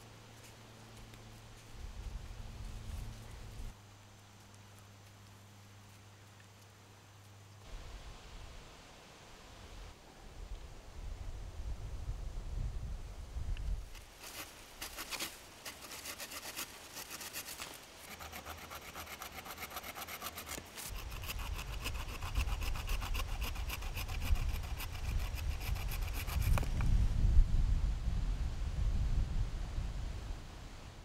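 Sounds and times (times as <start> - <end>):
handsaw cutting a branch: 14.0 - 26.7.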